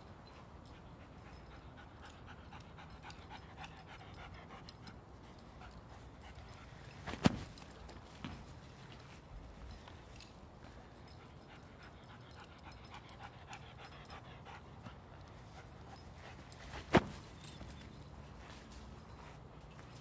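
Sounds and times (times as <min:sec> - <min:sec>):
dog collar jingling: 0:00.0 - 0:20.0
dog moving on grass: 0:16.2 - 0:20.0.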